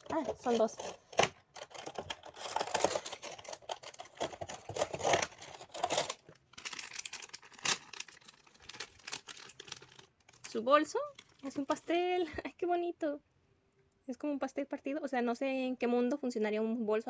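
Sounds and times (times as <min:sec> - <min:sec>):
plastic bag tearing: 0:00.0 - 0:11.9
plastic bag crinkling: 0:00.0 - 0:12.1.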